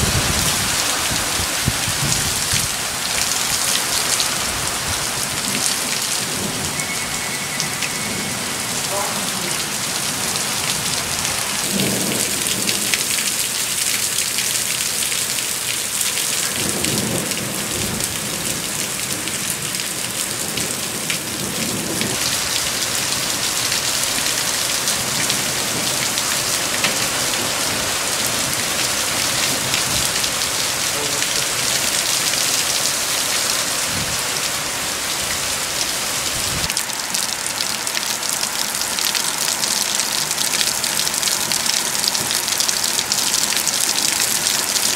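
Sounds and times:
low thunder rumbles: 0.0s - 8.8s, 10.6s - 13.3s
heavy rain pouring: 0.0s - 44.9s.

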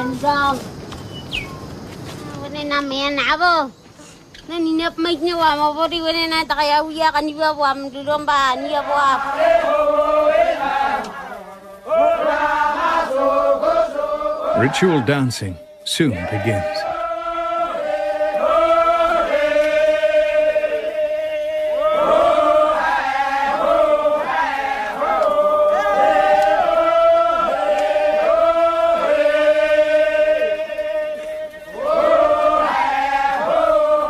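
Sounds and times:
men chanting together: 8.4s - 15.3s, 16.1s - 34.0s.

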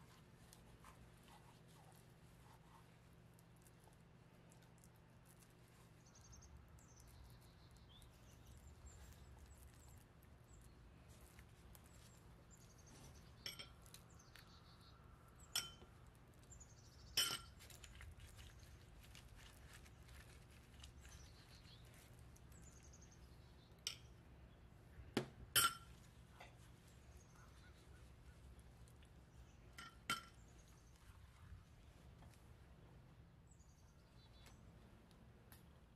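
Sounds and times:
metal spoon clinking glass dish: 25.6s - 25.9s.

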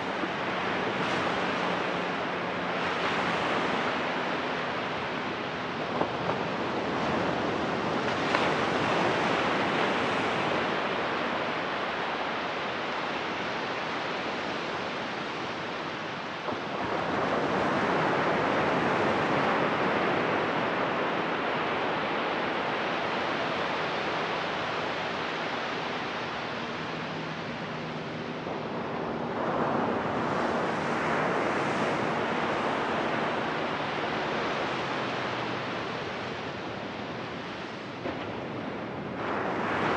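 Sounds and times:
ocean surf breaking on beach: 0.0s - 39.9s.

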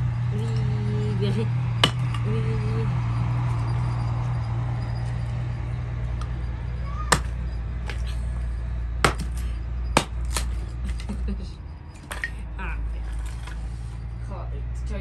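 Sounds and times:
steady low hum: 0.0s - 15.0s
sharp clinks: 6.1s - 13.5s.

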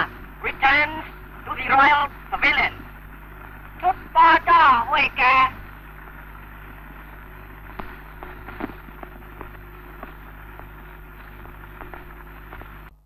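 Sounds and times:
low hum: 0.0s - 13.0s
crackle pops and clicks: 5.5s - 12.9s.

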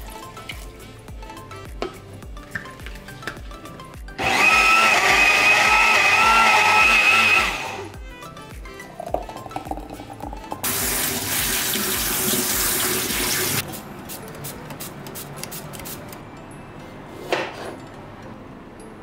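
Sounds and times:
soft background music with beat: 0.0s - 19.0s
tap water running into bowl: 9.0s - 13.6s.

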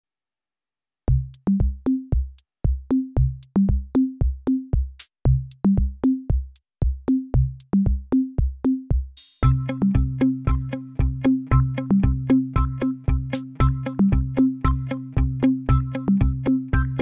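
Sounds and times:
bass line: 1.1s - 2.2s, 2.9s - 4.2s, 5.3s - 6.0s, 7.4s - 8.0s, 9.4s - 17.0s
drum machine beat: 1.1s - 17.0s.

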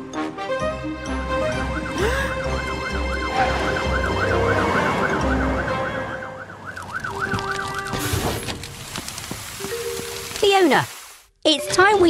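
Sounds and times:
cartoon siren wailing: 1.3s - 8.0s.

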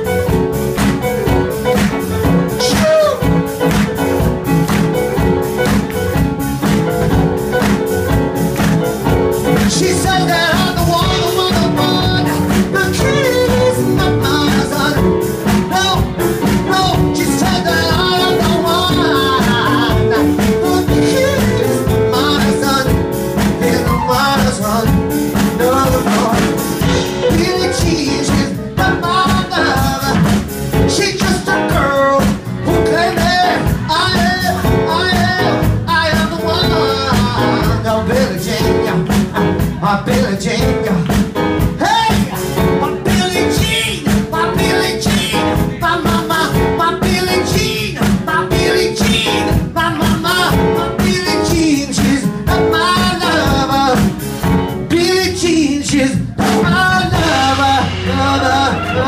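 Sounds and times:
drums: 0.0s - 59.0s
electric bass guitar: 0.0s - 59.0s
person singing: 2.4s - 3.8s, 9.3s - 59.0s.

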